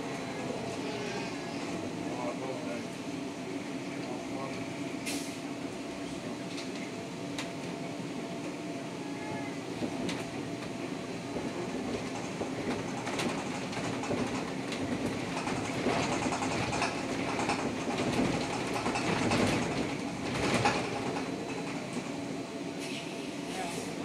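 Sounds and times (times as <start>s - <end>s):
sharp clicks and rattles: 12.0s - 21.6s.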